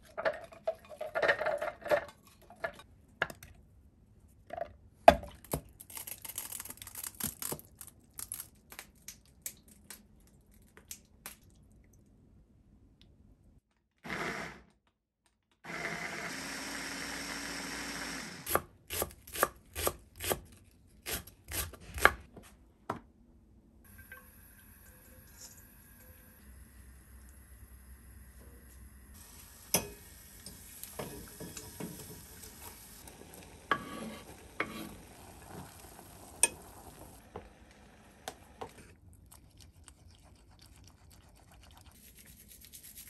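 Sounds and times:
food chopper motor running: 0:15.6 - 0:18.6.

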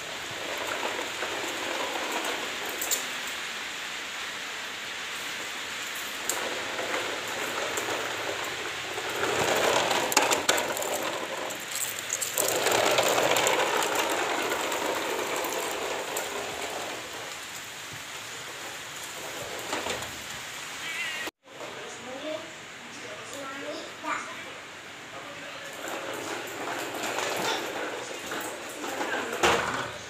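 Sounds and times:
toy truck wheels rattling on tile: 0:00.0 - 0:03.4, 0:05.8 - 0:17.7, 0:25.7 - 0:29.8.

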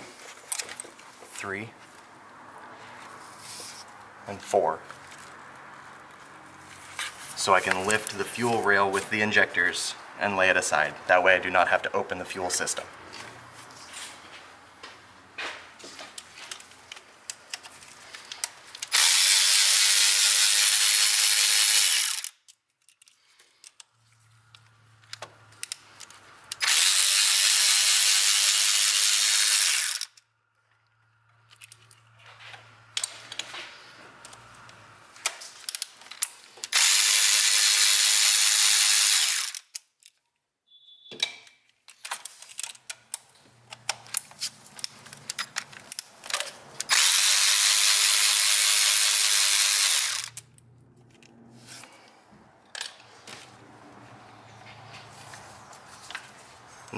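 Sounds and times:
electric ratchet running: 0:18.8 - 0:22.4, 0:26.5 - 0:30.2, 0:36.6 - 0:39.7, 0:46.8 - 0:50.6.

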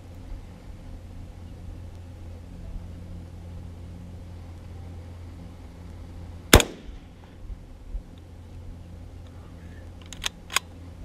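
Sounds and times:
steady low rumble: 0:00.0 - 0:11.0
sharp ringing crack: 0:06.5 - 0:07.2.

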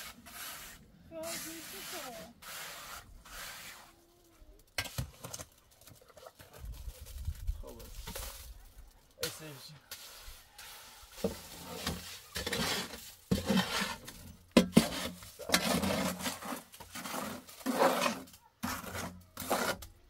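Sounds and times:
hard tool scraping: 0:09.9 - 0:20.0.

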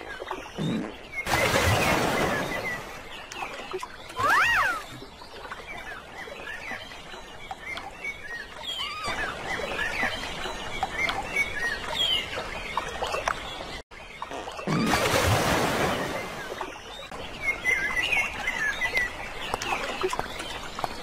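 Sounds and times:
whistled bird call: 0:04.1 - 0:05.0.

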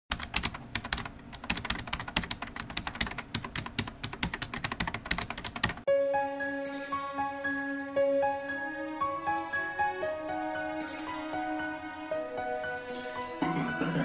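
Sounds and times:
rapid keyboard typing: 0:00.1 - 0:05.9
soft music with held notes: 0:05.9 - 0:14.0.

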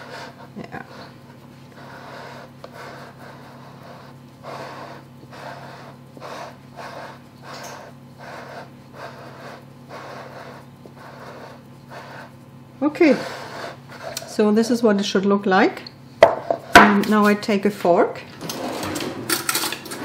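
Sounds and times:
fingers rubbing dough in metal pan: 0:00.0 - 0:14.8.

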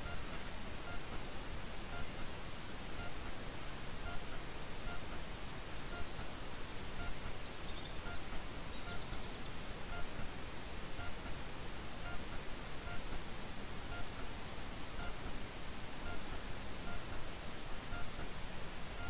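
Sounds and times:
steady hiss: 0:00.0 - 0:19.0
small bird chirping and trilling: 0:05.6 - 0:10.3.

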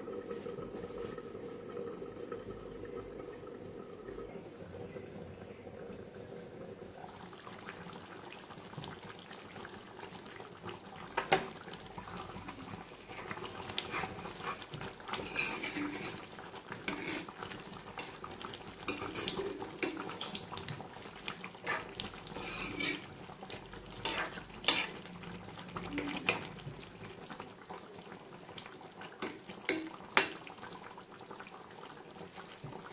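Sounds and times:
curry bubbling under lid: 0:00.0 - 0:32.9
metal ladle scraping a pan: 0:13.1 - 0:18.2, 0:18.9 - 0:20.2, 0:21.6 - 0:23.2, 0:23.9 - 0:25.1.

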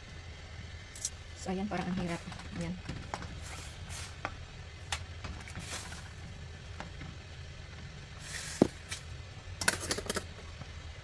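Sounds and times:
boiling pot rumble: 0:00.0 - 0:11.0.

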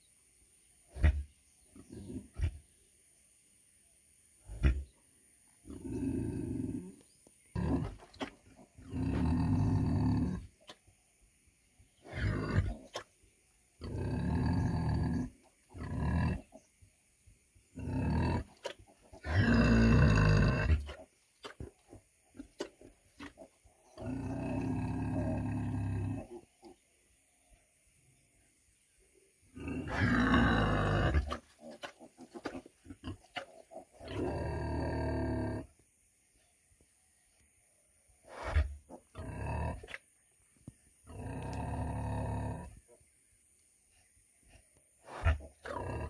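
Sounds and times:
pig grunting: 0:00.9 - 0:02.7, 0:04.5 - 0:05.0, 0:05.6 - 0:10.7, 0:12.0 - 0:13.1, 0:13.8 - 0:16.6, 0:17.7 - 0:26.5, 0:29.5 - 0:35.7, 0:38.2 - 0:40.0, 0:41.0 - 0:43.0, 0:45.0 - 0:46.0.

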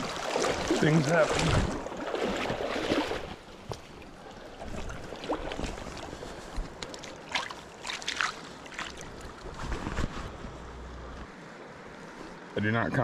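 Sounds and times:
stream rushing: 0:00.0 - 0:09.6
water splashing around legs: 0:00.0 - 0:09.6.

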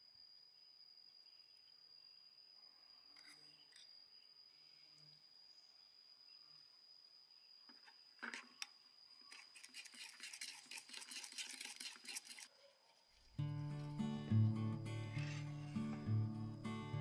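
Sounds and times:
music: 0:13.4 - 0:17.0.

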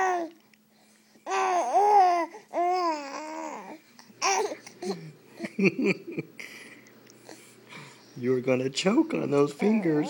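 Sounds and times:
baby babbling: 0:00.0 - 0:00.3, 0:01.2 - 0:05.0
baby cooing: 0:00.0 - 0:00.3, 0:01.2 - 0:05.1, 0:09.6 - 0:10.0.

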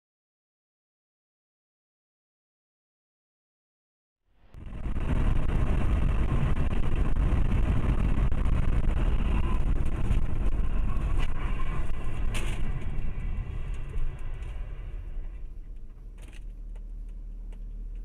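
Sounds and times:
car road and engine rumble: 0:04.3 - 0:18.0.

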